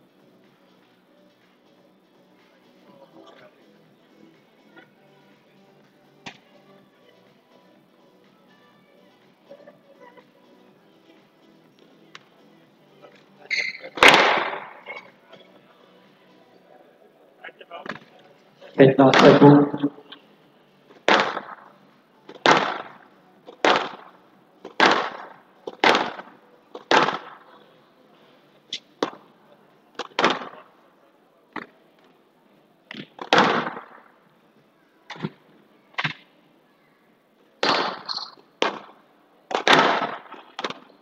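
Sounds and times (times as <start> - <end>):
squash ball hits echoing: 14.0 - 14.7, 19.1 - 19.5, 21.1 - 21.6, 22.4 - 23.0, 23.6 - 24.1, 24.7 - 27.4, 33.2 - 34.0, 37.6 - 40.8.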